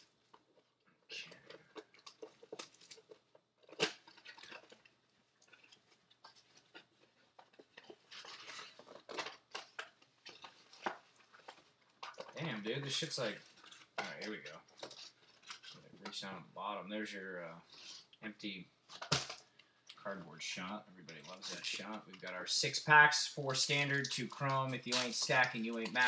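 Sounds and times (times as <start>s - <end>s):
wrapping crinkling and tearing: 0.0s - 16.2s, 21.1s - 22.6s, 23.2s - 26.0s
cardboard rustling: 5.5s - 16.2s.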